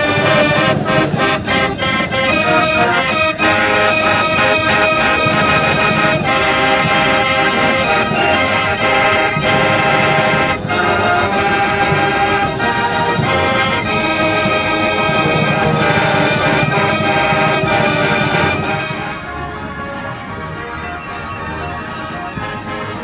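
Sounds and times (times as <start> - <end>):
fair organ playing a tune: 0.0 - 23.0.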